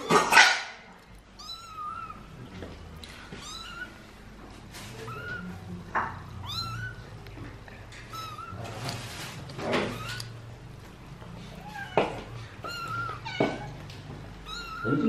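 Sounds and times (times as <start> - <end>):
kitten mewing: 3.4 - 4.0, 6.3 - 7.0, 14.4 - 15.0.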